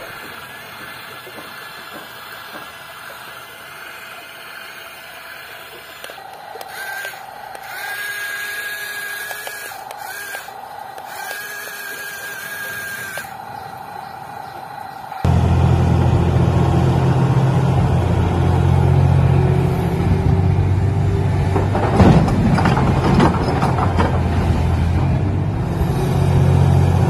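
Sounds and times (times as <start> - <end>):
toy gear motors whining: 0.0 - 15.3.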